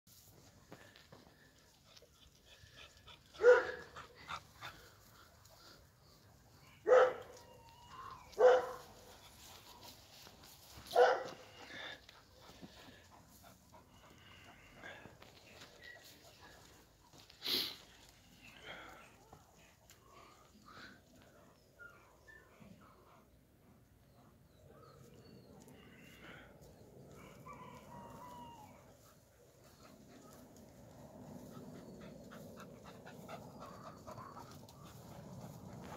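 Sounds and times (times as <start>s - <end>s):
dog barking: 3.4s - 3.9s, 6.8s - 7.3s, 8.4s - 8.9s, 10.9s - 11.4s.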